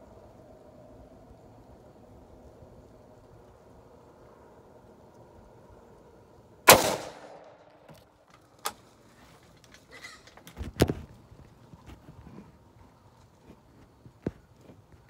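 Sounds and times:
rifle shot: 6.7 - 7.8.

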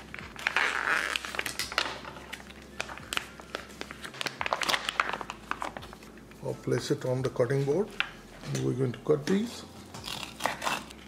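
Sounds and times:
plastic wrap crinkling: 0.0 - 8.6.

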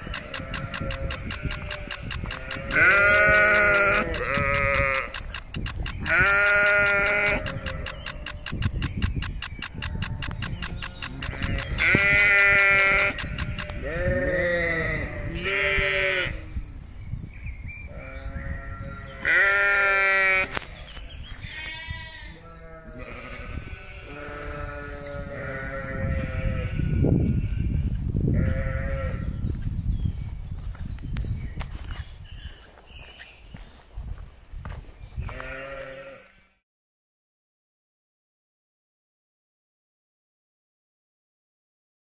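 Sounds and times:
sheep bleating: 0.0 - 5.2, 5.9 - 8.4, 9.9 - 16.4, 17.9 - 20.6, 21.5 - 27.7, 28.4 - 29.3, 35.3 - 36.4.

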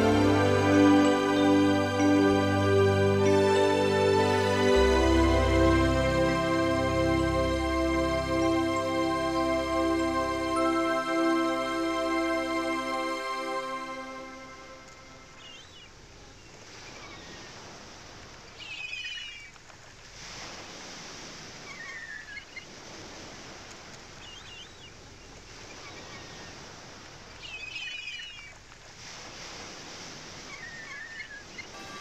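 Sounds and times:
ocean surf washing ashore: 0.0 - 32.0
small birds chirping: 15.2 - 17.6, 18.5 - 19.5, 24.2 - 26.6, 27.3 - 28.6, 30.4 - 32.0.

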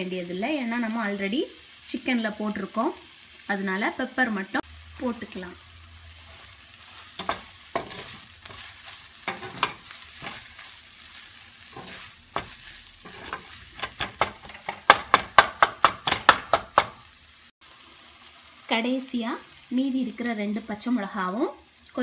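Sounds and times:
faint sizzle: 0.0 - 22.0
spatula stirring in frying pan: 5.9 - 17.1
spatula tapping on pan: 7.2 - 8.0, 13.2 - 17.1
spatula knocking on pan: 7.2 - 8.6, 9.3 - 10.4, 11.8 - 17.1.

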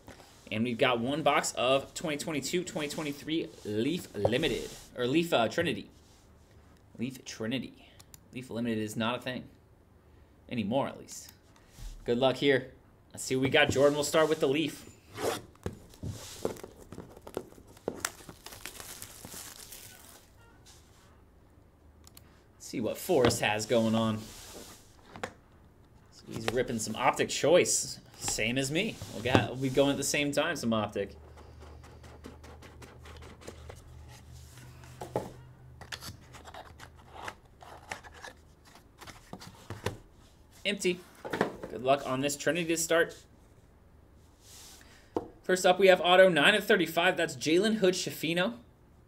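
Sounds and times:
plastic shrink-wrap crackling: 17.2 - 20.3.

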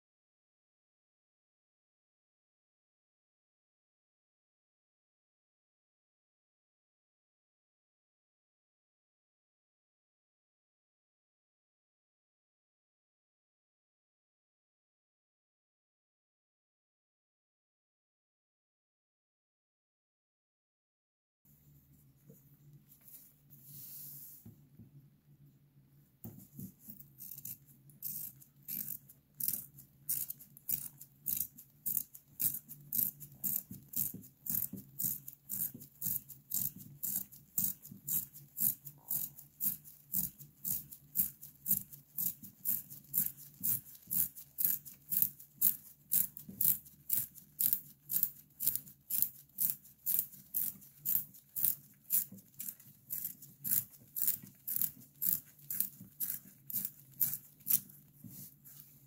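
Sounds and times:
pencil sharpener scraping: 26.3 - 59.0.

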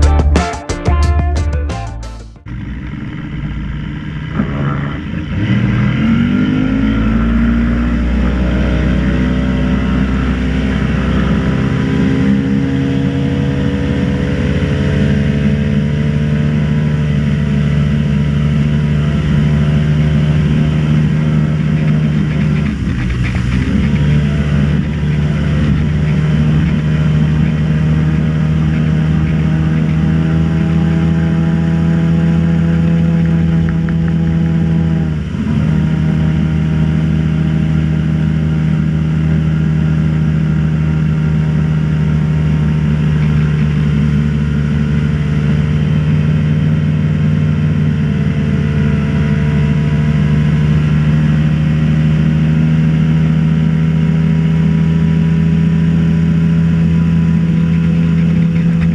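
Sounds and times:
motorboat engine running: 2.4 - 58.9.

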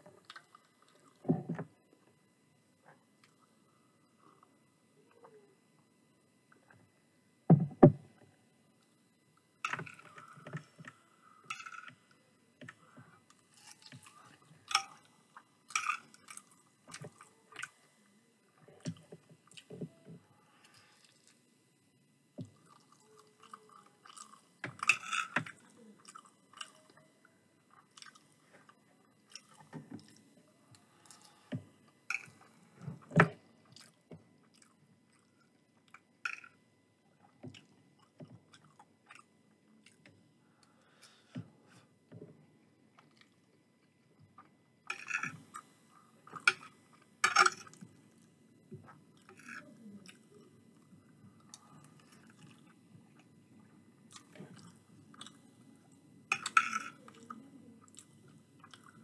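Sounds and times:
person chewing food: 22.4 - 26.9, 27.7 - 32.6, 33.6 - 36.6, 37.5 - 40.0, 42.9 - 45.7, 54.1 - 55.5, 56.4 - 59.0.

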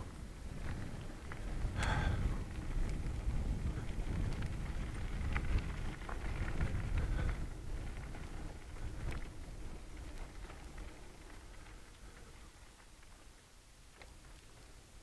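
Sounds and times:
wind on microphone: 0.0 - 10.4
bicycle tyres rumbling on gravel: 0.0 - 15.0
bike clicks and rattles: 0.0 - 15.0.

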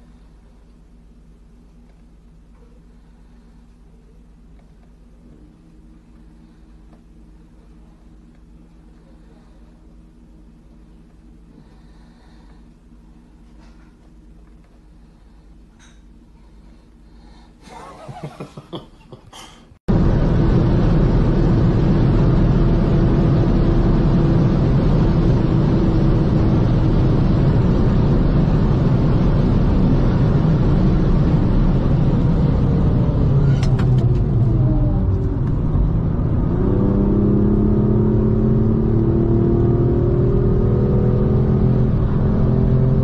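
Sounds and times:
car engine and road noise: 19.9 - 43.0.

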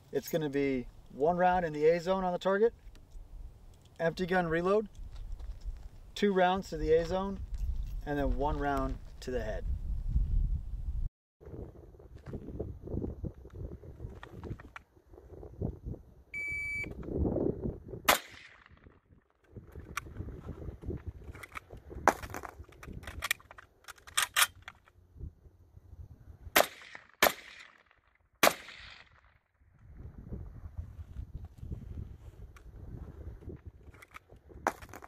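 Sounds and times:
shot timer beep: 16.4 - 16.9
rifle shots: 18.1 - 18.7, 26.6 - 27.8, 28.4 - 29.1
gun reload clatter: 21.2 - 25.0, 33.8 - 35.0.

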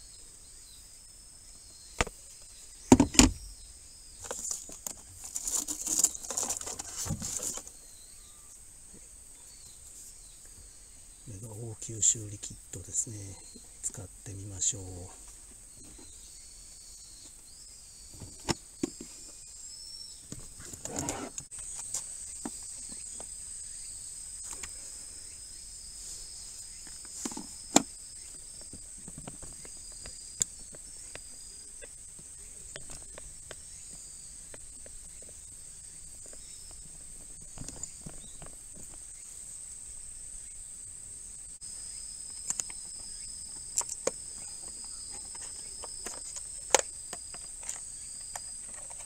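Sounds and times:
insects chirring: 0.0 - 49.0
plastic case knocks and clicks: 2.9 - 3.4.

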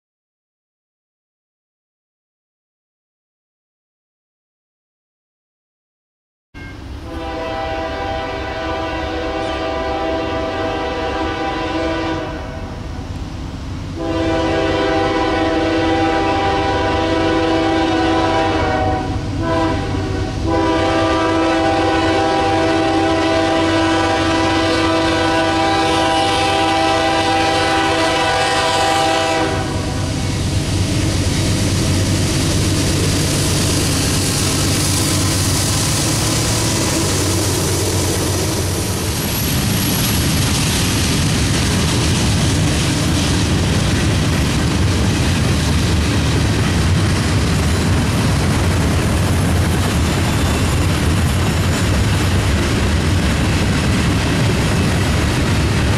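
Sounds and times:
train wheels rumbling: 6.7 - 55.9
locomotive air horn blasts: 7.0 - 13.0, 14.0 - 30.4.

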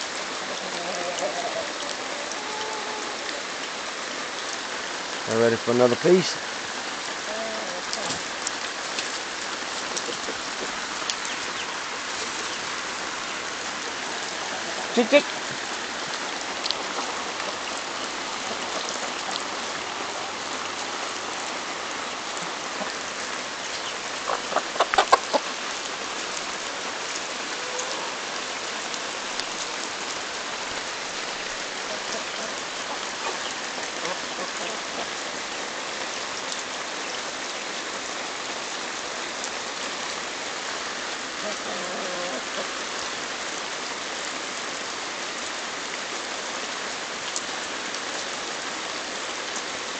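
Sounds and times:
chickens clucking: 0.2 - 3.4, 9.6 - 12.7, 22.4 - 23.0, 23.7 - 25.6, 31.8 - 35.2, 41.4 - 42.8
chickens pecking corn: 0.4 - 3.4, 24.2 - 25.5.

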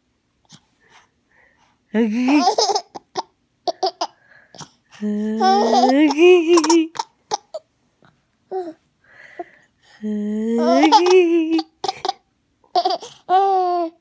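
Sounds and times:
baby laughing: 2.2 - 4.2, 5.4 - 7.7, 10.6 - 14.0.

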